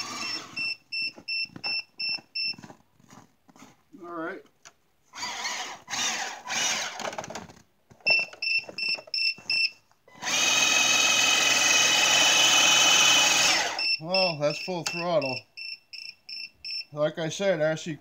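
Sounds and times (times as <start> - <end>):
toy drill motor whining: 0.0 - 0.7, 5.2 - 7.2, 10.1 - 14.0
short high beeps: 0.0 - 2.6, 8.1 - 9.8, 13.7 - 17.0.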